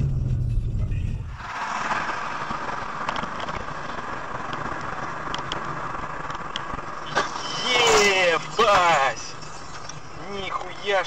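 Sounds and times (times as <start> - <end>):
car road and wind noise: 0.0 - 11.0.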